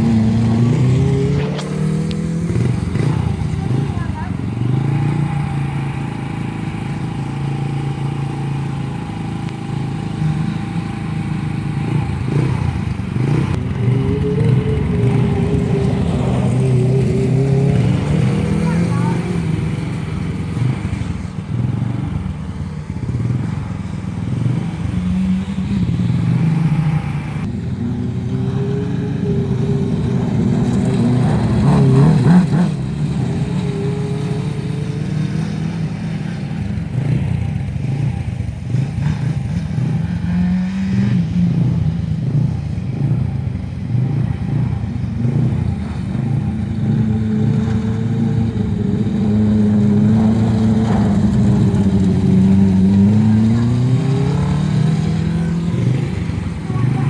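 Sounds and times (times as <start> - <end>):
racing car engine revving: 0.0 - 57.0.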